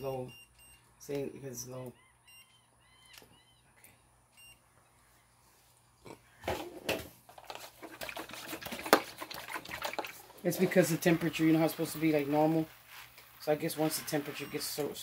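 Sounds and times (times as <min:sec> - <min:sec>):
faint electronic beeps: 0:00.0 - 0:05.4, 0:14.0 - 0:15.0
pressure sprayer pumping and misting: 0:10.4 - 0:15.0.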